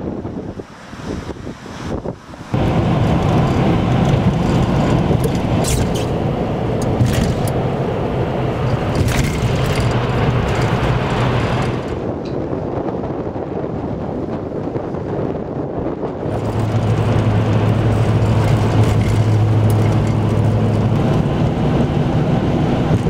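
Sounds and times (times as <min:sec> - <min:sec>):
car road and engine rumble: 0:00.0 - 0:23.0
wind on microphone: 0:00.0 - 0:23.0.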